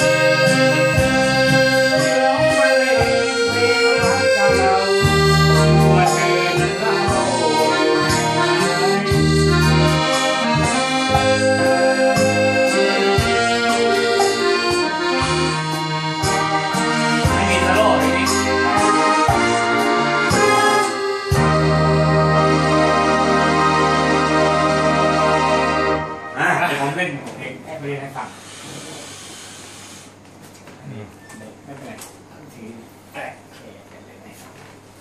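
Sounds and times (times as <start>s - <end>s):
held low bass notes: 0.0s - 26.7s
electronic organ accompaniment: 0.0s - 27.2s
piano accordion melody: 0.0s - 27.2s.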